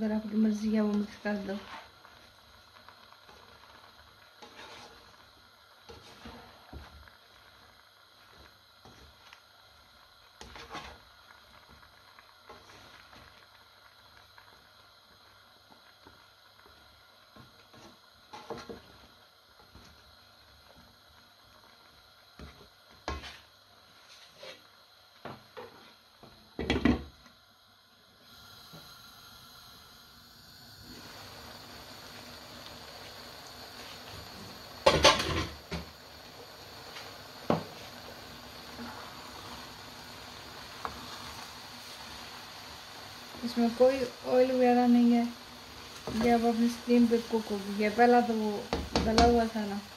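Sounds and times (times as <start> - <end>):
steam hissing: 0.0 - 25.0, 28.0 - 49.9
spatula scraping a wok: 1.3 - 2.1, 4.4 - 5.2, 5.8 - 7.0, 10.4 - 11.1, 17.7 - 18.8, 23.0 - 24.7, 40.8 - 42.3.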